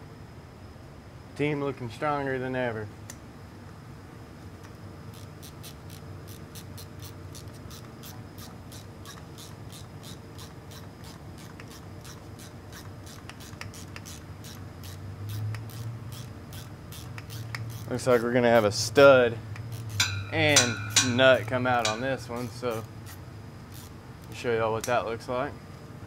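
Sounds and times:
ratchet wrench clicking: 5.1 - 24.9.

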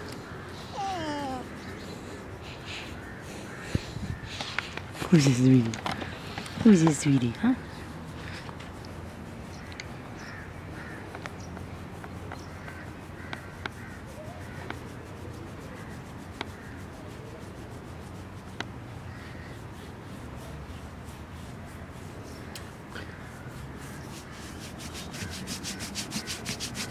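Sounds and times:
hand rubbing fur: 0.0 - 11.2, 11.8 - 26.9
faint animal calls: 0.1 - 4.5.

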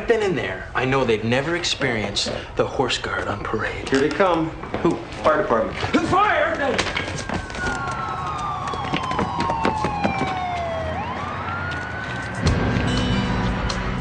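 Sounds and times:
fire engine siren wailing: 6.6 - 13.8.

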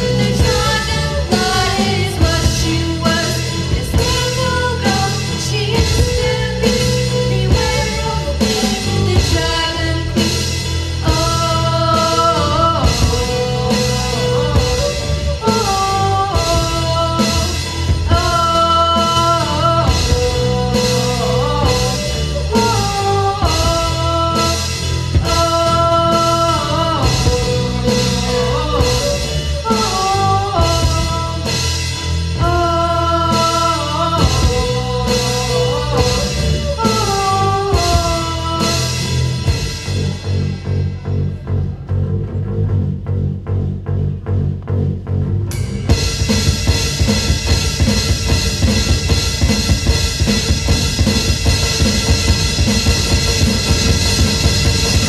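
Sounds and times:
drum kit beat: 0.0 - 41.6, 45.5 - 55.0
person singing: 0.0 - 41.6
keyboard: 0.0 - 55.0.

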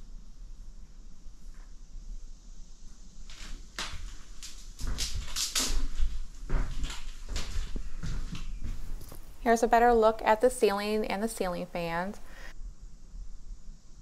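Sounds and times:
footsteps on wooden floor: 3.3 - 9.4.

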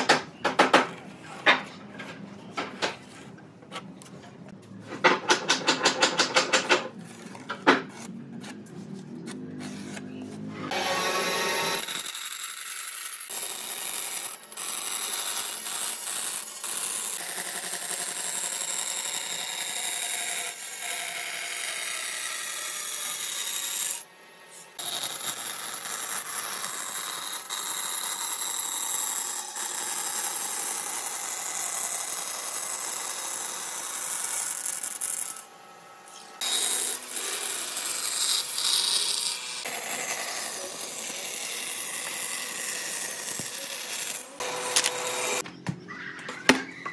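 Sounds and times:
band saw cutting wood: 5.0 - 45.4.

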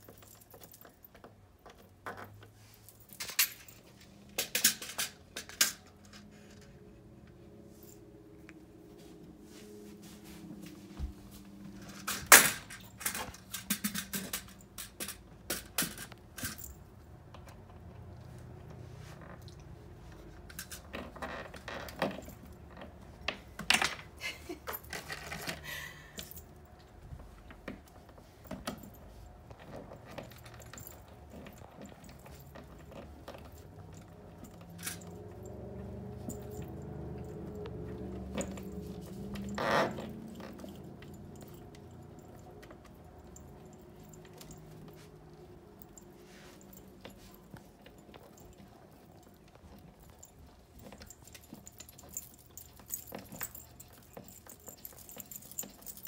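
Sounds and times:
hardware clicking and knocking: 11.8 - 17.8.

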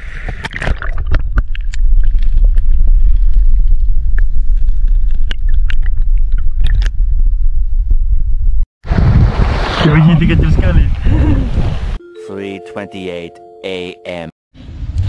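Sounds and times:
underwater low rumble: 0.8 - 9.6.

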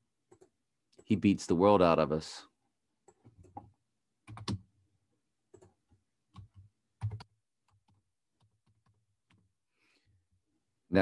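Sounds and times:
typing on keyboard: 3.1 - 4.7, 5.5 - 9.4.

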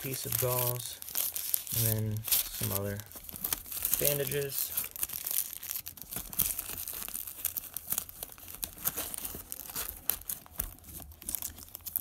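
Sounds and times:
plastic wrappers crinkling: 0.0 - 12.0.

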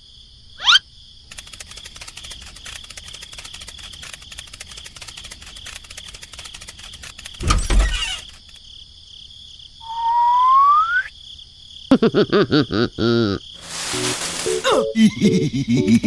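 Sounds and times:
rising cartoon whistle: 9.8 - 11.1.

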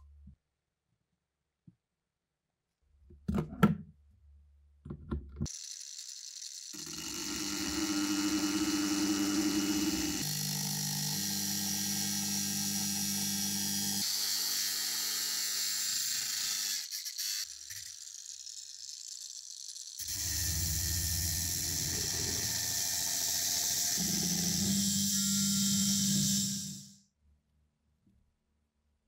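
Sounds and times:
small electric power tool running: 5.5 - 27.0.

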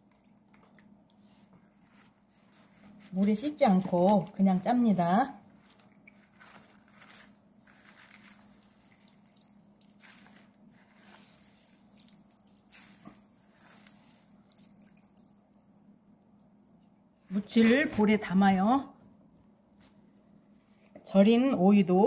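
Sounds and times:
liquid dripping into metal bowl: 0.0 - 1.2, 8.8 - 10.0, 11.8 - 13.3, 14.4 - 17.1
wet cloth squishing: 0.0 - 20.0.

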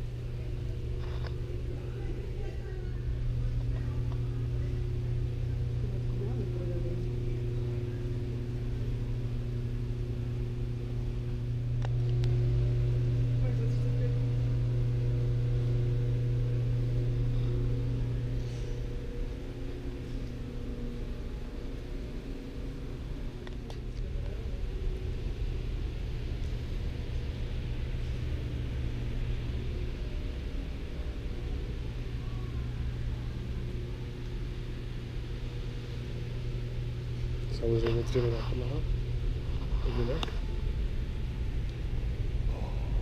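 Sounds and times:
low mechanical hum: 0.0 - 43.0.

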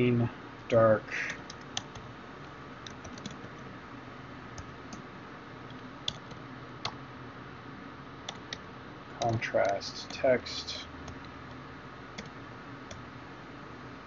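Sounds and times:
faint steady hiss: 0.0 - 14.0
keyboard keystrokes: 2.8 - 3.5.

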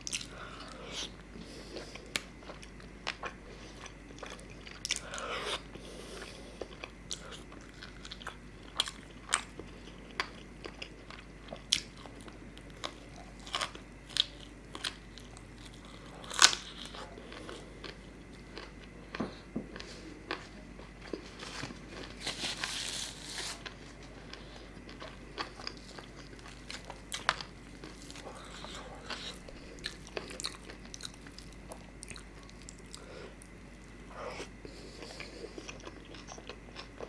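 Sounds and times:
chewing and biting food: 0.0 - 22.4, 23.5 - 37.0.

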